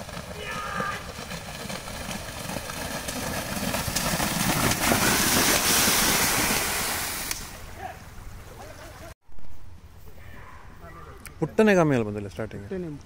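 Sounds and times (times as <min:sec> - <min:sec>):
buffaloes splashing through water: 0:00.0 - 0:09.2.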